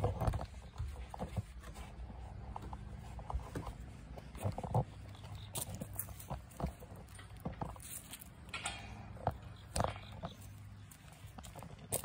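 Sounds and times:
footsteps on wooden deck: 0.0 - 8.2
footsteps on gravel: 0.0 - 8.5, 9.3 - 12.0.

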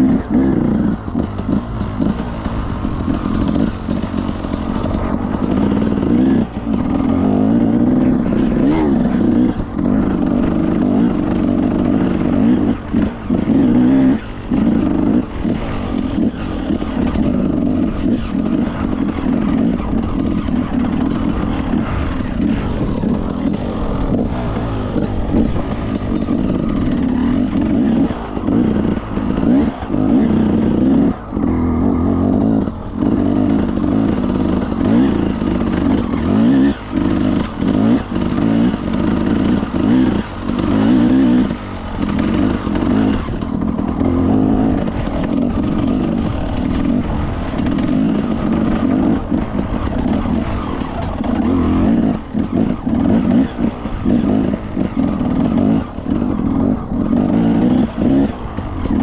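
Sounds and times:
clatter: 0.0 - 59.0
motorcycle engine running: 0.0 - 59.0.

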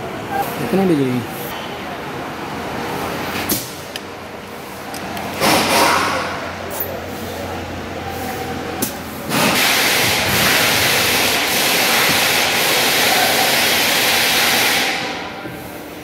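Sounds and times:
compressed air hissing: 9.3 - 15.1.

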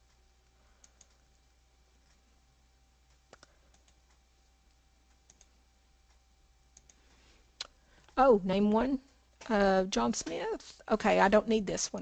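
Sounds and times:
faint computer mouse clicks: 0.8 - 2.2, 3.1 - 4.2, 5.1 - 5.5, 6.8 - 8.2.

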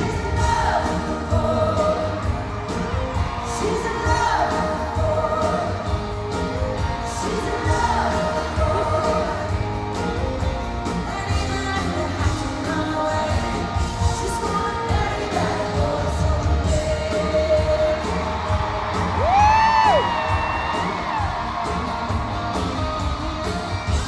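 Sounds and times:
country band with singing: 0.0 - 24.0
drum beat: 16.2 - 24.0.

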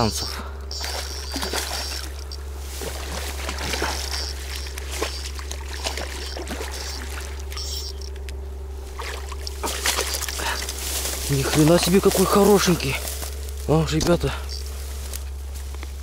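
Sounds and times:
rustles: 0.2 - 16.0
water sloshing and trickling: 0.8 - 13.4.

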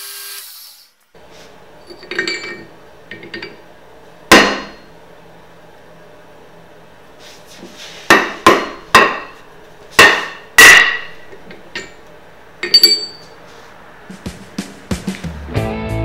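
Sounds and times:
hammer striking steel on anvil: 4.3 - 4.9, 8.1 - 9.4, 10.0 - 11.2, 12.6 - 13.3
metallic clinks rattling: 12.6 - 13.3.

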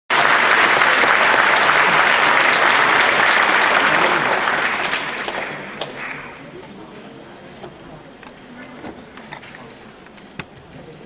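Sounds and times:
audience applauding: 0.1 - 6.5.

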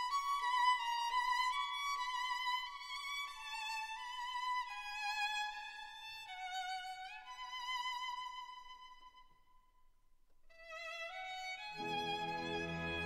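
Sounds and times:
slow violin melody: 10.6 - 13.0.

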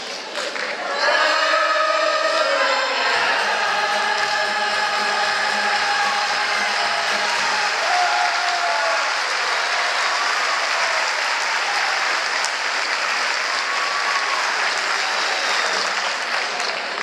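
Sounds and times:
audience applauding: 0.3 - 17.0
choir singing: 0.8 - 9.4.

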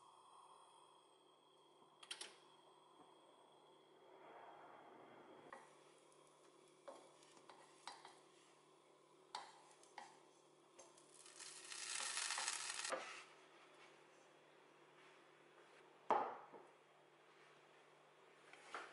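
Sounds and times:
bread frying with hiss: 5.6 - 13.2.

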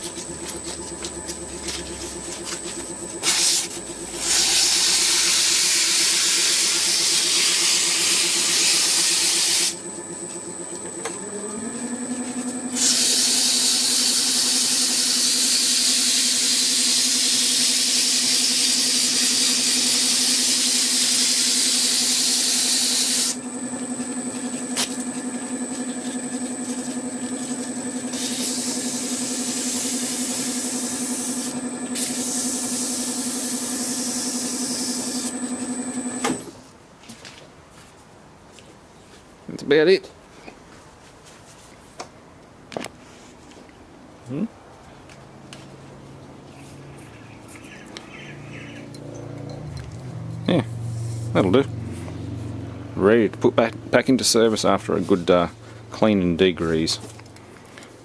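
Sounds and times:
lathe motor hum: 0.0 - 36.5
sandpaper hissing on spinning metal: 1.8 - 9.8, 12.7 - 23.4, 28.0 - 35.3, 50.7 - 51.6.

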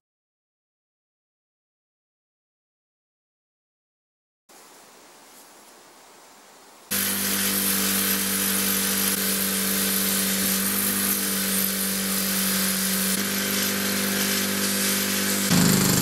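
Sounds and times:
bench polisher motor hum: 6.9 - 16.0
buffing wheel hissing on metal: 6.9 - 16.0.

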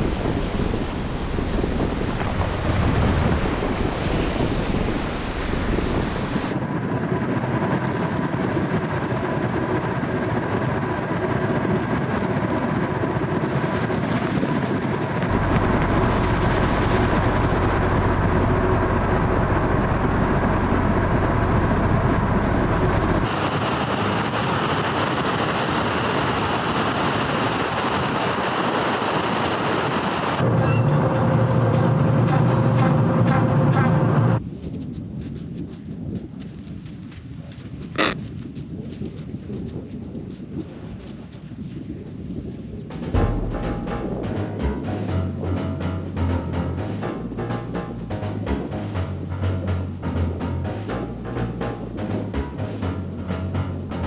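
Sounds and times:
ship breaking through sea ice: 0.0 - 6.6, 13.2 - 33.2
wind: 0.0 - 54.0.

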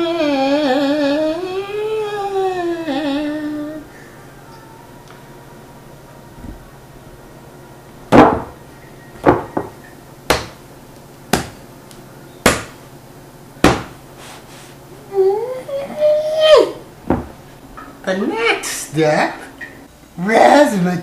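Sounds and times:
hands slapping bread on board: 10.3 - 10.6, 11.3 - 12.8, 13.6 - 14.4.

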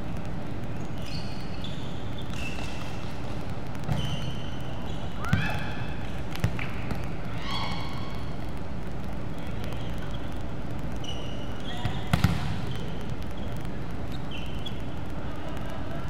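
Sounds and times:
sneakers squeaking on floor: 0.8 - 5.6, 11.0 - 14.9
volleyball being struck: 12.1 - 12.7.

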